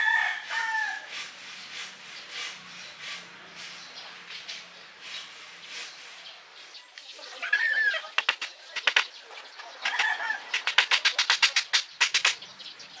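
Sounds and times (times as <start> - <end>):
bird calling: 5.1 - 13.0.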